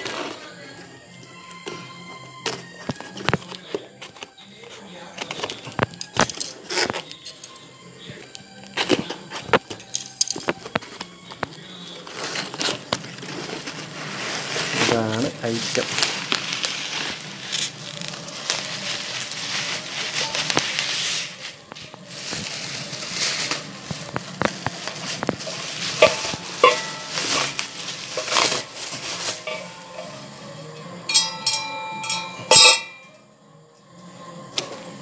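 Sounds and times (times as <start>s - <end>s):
bubble wrap crinkling: 8.6s - 30.7s.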